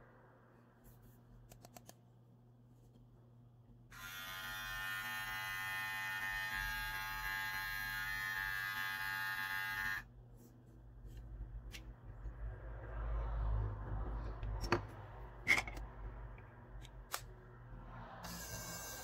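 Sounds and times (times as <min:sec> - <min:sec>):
hair trimmer buzzing: 0:03.9 - 0:10.0, 0:18.2 - 0:19.0.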